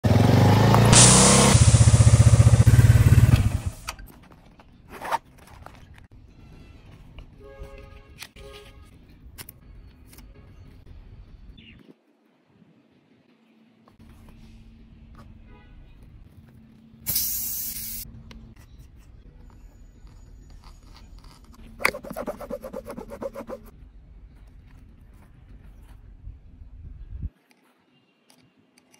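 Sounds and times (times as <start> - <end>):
motorcycle engine running: 0.0 - 3.9
loud hiss: 0.9 - 3.8, 17.1 - 18.0
rubbery creaks and clicks: 19.5 - 22.2.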